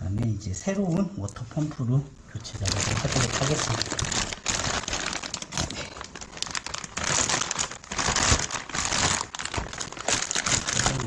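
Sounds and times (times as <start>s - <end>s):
plastic bag crinkling: 2.3s - 11.0s.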